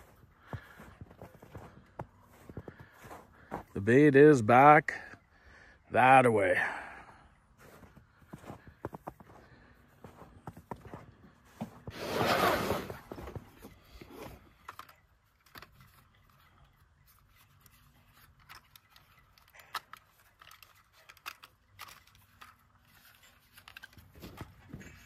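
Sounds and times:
drone handling clicks and scrapes: 11.6 - 25.0.

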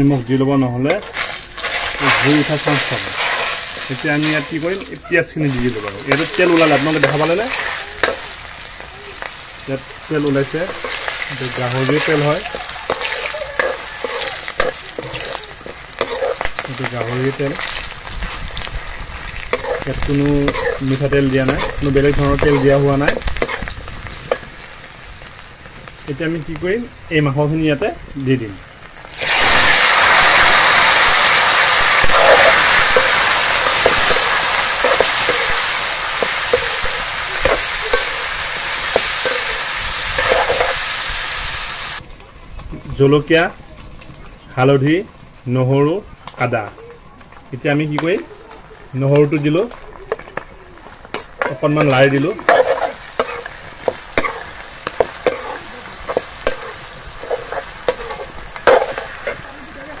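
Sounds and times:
meat sizzling in wok: 0.0 - 60.0
metal ladle scraping pan: 10.4 - 18.0, 18.6 - 24.5, 29.2 - 41.0, 51.1 - 59.6.

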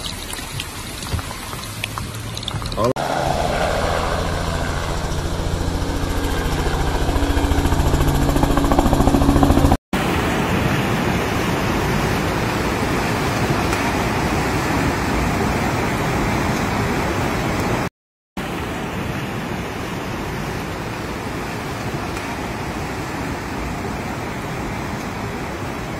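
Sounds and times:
helicopter rotor beat: 2.8 - 9.8
rushing floodwater: 10.0 - 25.9.

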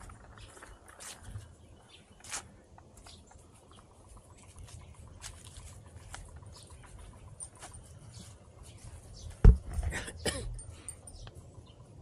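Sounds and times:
footsteps on dry leaves: 0.0 - 3.3, 4.3 - 9.1.

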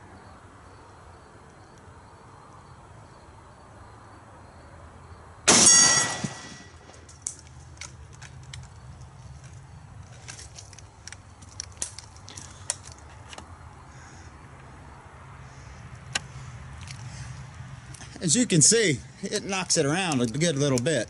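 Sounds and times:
rifle shot: 5.5 - 6.8.

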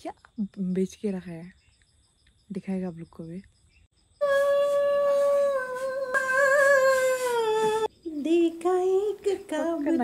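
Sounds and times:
person humming: 4.2 - 7.9.

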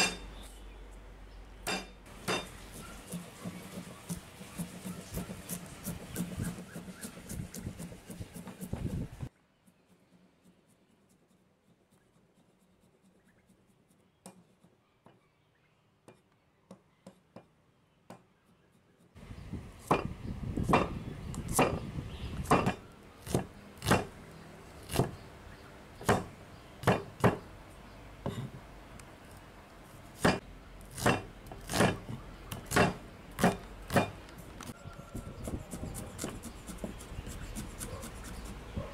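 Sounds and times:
cleaver chopping onion on wood: 1.7 - 9.1, 19.8 - 21.8, 22.4 - 24.2, 24.8 - 25.2, 26.0 - 27.5, 30.2 - 38.9.

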